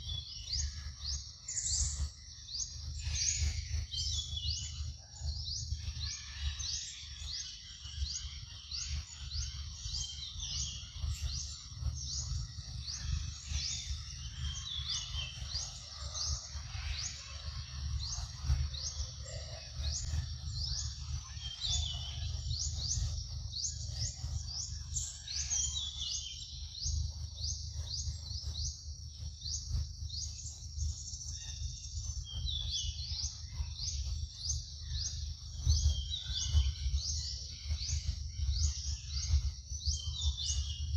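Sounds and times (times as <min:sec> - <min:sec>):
steady low rumble: 0:00.0 - 0:40.9.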